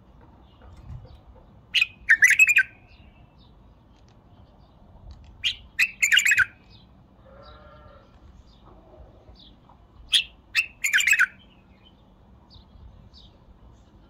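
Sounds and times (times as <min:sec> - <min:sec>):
bird singing whistled notes: 0:01.8 - 0:03.3, 0:05.4 - 0:06.9, 0:10.1 - 0:12.0.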